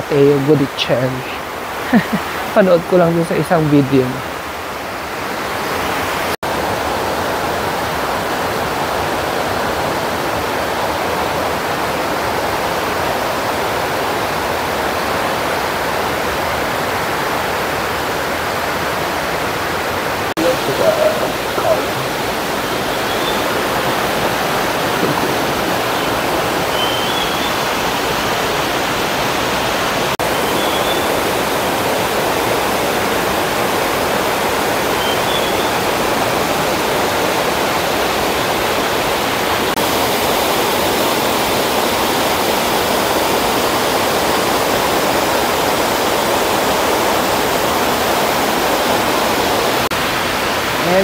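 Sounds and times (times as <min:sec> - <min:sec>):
waterfall roaring: 0:00.0 - 0:51.0
faint high bird chirps: 0:22.6 - 0:24.0, 0:25.2 - 0:27.7, 0:30.4 - 0:31.2, 0:35.0 - 0:35.8.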